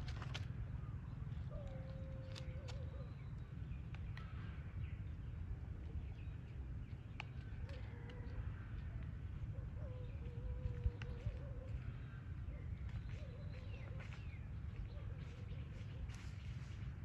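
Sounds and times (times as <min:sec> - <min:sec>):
light clicks and rustles: 0:00.0 - 0:00.6.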